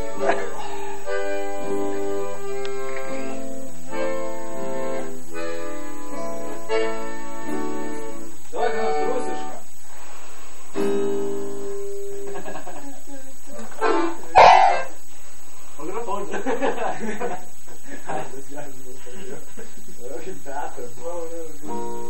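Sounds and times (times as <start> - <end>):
accordion playing chords: 0.0 - 9.7, 13.6 - 15.1, 21.1 - 22.0.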